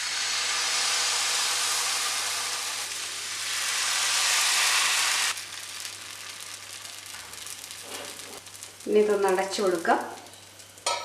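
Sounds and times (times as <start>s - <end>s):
batter sizzling in a pan: 0.0s - 11.0s.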